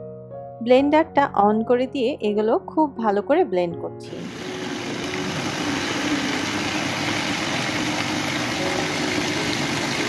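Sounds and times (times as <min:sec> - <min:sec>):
electric blender motor humming: 0:04.1 - 0:10.0.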